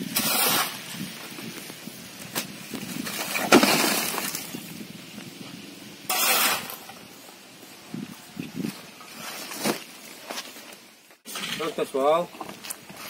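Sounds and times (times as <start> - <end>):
brick wall crashing down: 3.0 - 4.6
bricks and plaster clattering: 3.0 - 4.6.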